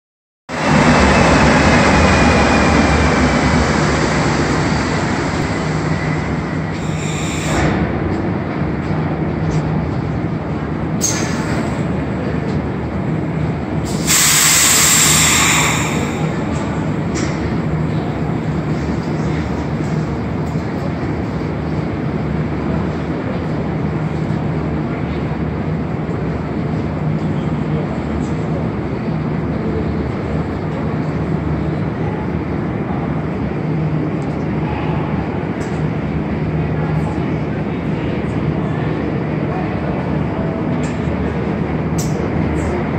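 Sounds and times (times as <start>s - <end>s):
train rumbling to a stop: 0.5s - 42.9s
loud air hiss: 6.8s - 7.7s, 13.8s - 16.4s.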